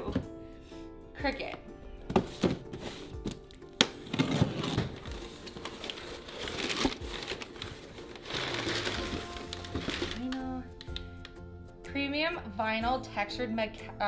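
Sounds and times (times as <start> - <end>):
packaging crinkling and rustling: 2.7 - 11.0.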